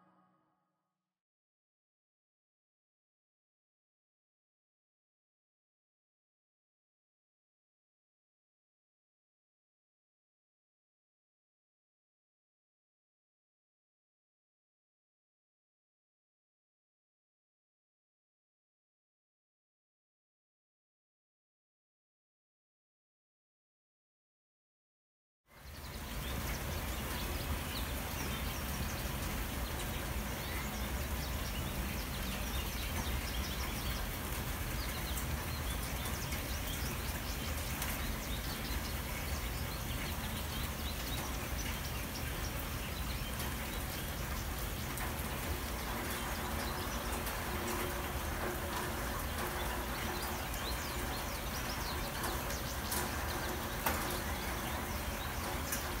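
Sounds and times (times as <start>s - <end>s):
faint ticks and clicks: 43.4s - 56.0s.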